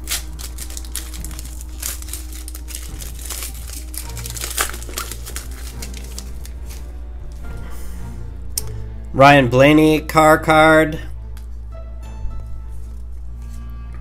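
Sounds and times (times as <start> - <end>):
foil wrapper crinkling: 0.0 - 6.9.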